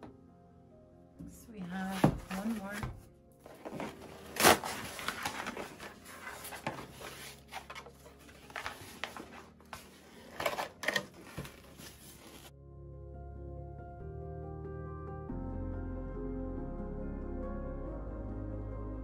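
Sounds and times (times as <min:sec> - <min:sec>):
packing insert scraping cardboard: 0:03.5 - 0:12.5
packing tape tearing: 0:03.5 - 0:12.5.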